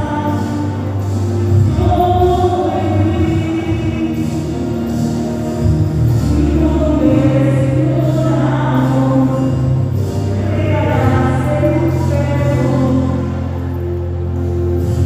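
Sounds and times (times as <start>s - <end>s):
woman singing a hymn: 0.0s - 4.8s, 6.2s - 13.5s
sustained low accompaniment notes: 0.0s - 15.0s.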